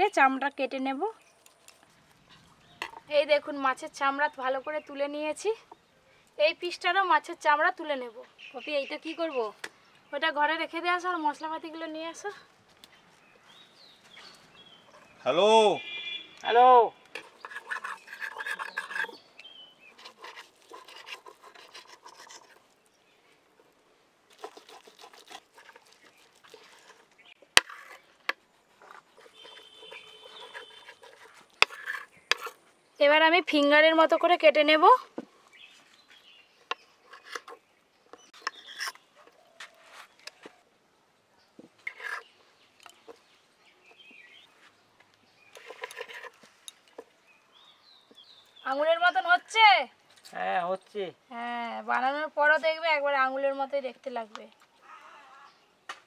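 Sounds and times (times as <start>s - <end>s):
knife scraping and slicing fish: 17.2s - 19.2s, 19.9s - 22.8s, 24.3s - 32.6s, 36.7s - 37.6s, 45.6s - 46.5s
fowl calling: 29.2s - 31.3s.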